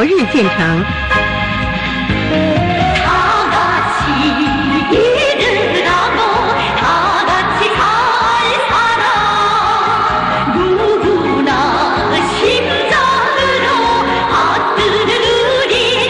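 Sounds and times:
steady bass beat: 0.0s - 1.1s.

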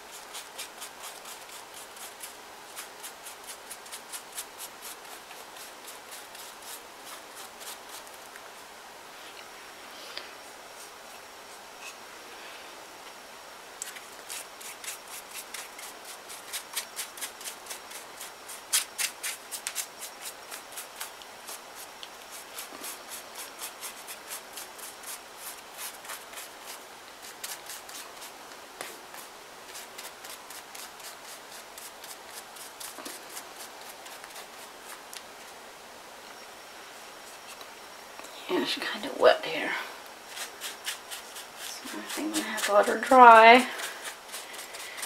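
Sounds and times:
paintbrush scrubbing on paper: 0.1s - 8.2s, 13.8s - 35.0s, 40.2s - 45.0s.

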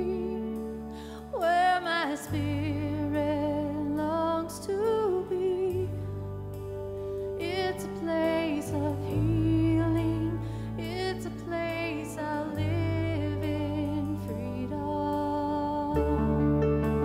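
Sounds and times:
guitar: 0.0s - 17.0s
person singing: 7.4s - 17.0s.

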